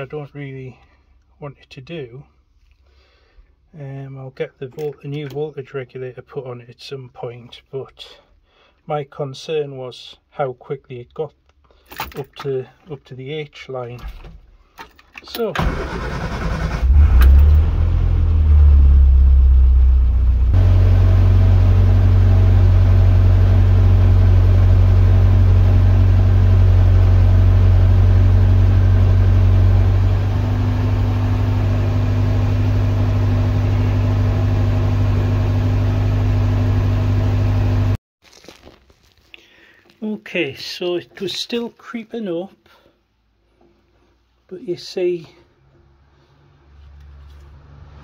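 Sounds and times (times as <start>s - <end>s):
car engine idling: 15.6s - 37.2s.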